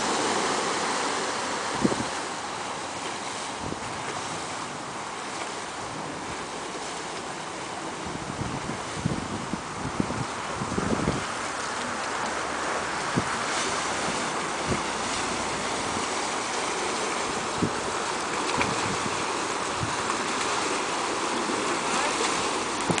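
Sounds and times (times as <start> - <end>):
churning wake water: 0.0 - 23.0
speedboat motor rushing: 0.0 - 23.0
wind thumping microphone: 1.7 - 2.3, 3.6 - 4.2, 8.0 - 11.7, 12.4 - 16.5, 17.1 - 20.2, 22.6 - 23.0.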